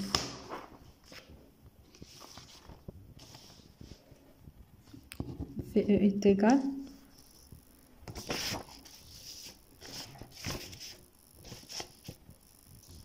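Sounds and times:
paper rustling and sliding: 0.1s - 4.0s, 7.2s - 12.2s.

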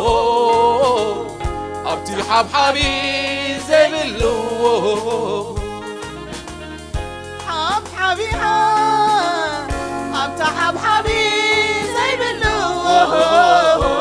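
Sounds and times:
gospel singing: 0.0s - 6.0s, 7.5s - 14.0s
band accompaniment: 0.0s - 14.0s
drum hit: 1.4s - 3.1s.

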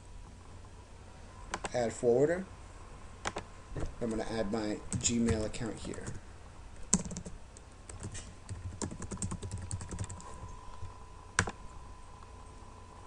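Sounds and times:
typing on a computer keyboard: 6.9s - 10.3s.

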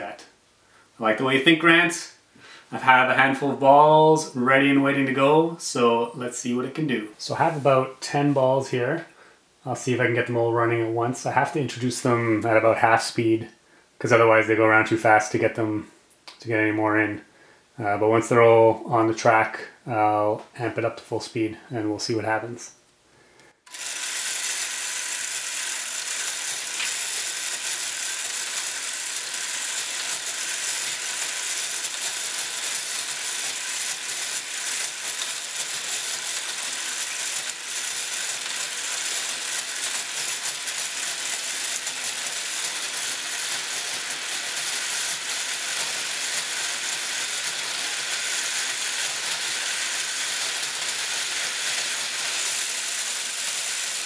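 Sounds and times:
motor whirring: 23.6s - 54.0s
plastic balls rattling on rails: 23.7s - 54.0s.

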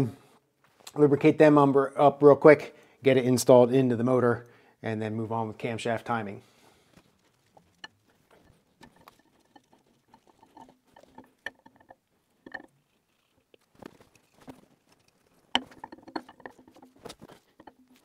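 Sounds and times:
metal clicks and taps: 7.6s - 12.8s, 14.4s - 18.0s.

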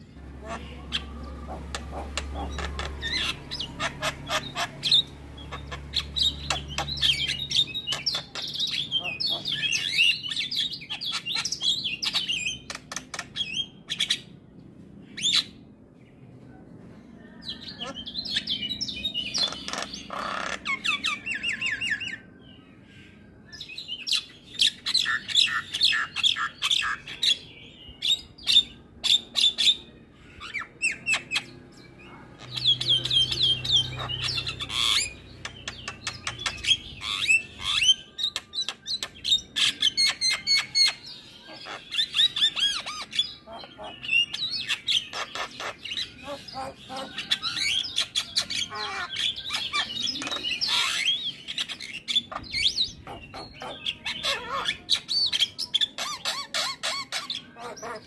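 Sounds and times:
bird chattering and whistling: 0.3s - 14.3s, 17.7s - 22.3s, 32.4s - 58.0s.

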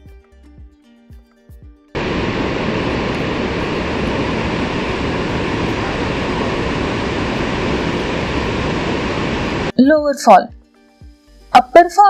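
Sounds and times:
waterfall rushing: 2.0s - 9.7s.

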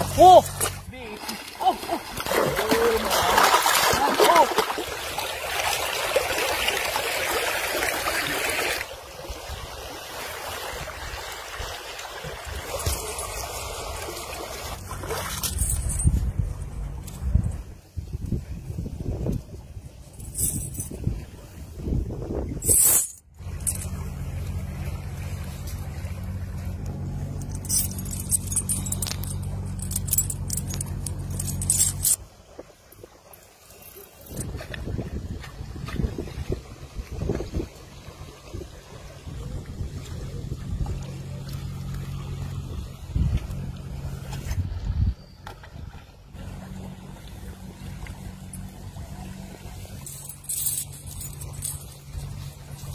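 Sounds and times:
river water rushing: 0.0s - 15.6s
low wind rumble: 14.8s - 32.5s, 34.3s - 52.9s
iron chain rattling: 15.4s - 16.2s, 20.2s - 21.0s, 22.6s - 24.0s, 27.3s - 32.2s, 50.0s - 52.9s.

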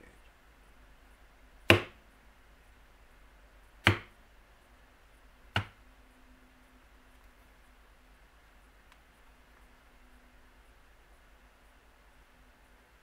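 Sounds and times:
mallet striking leather punch: 1.7s - 2.0s, 3.8s - 4.1s, 5.6s - 5.8s.

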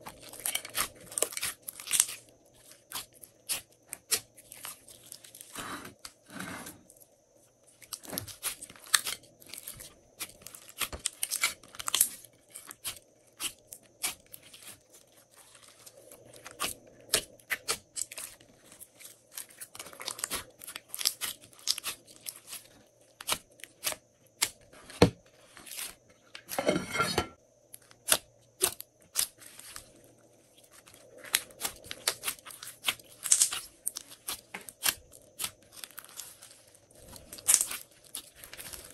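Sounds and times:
slime crackling: 0.2s - 5.5s, 7.8s - 24.5s, 30.6s - 38.9s.

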